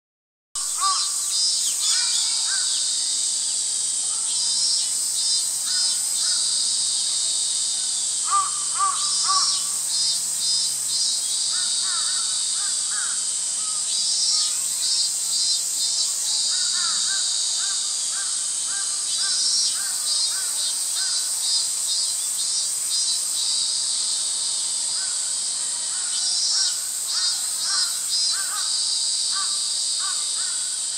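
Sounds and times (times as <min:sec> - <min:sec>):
bird calls: 0:00.6 - 0:03.2, 0:08.2 - 0:23.6
cicadas singing: 0:00.6 - 0:30.9.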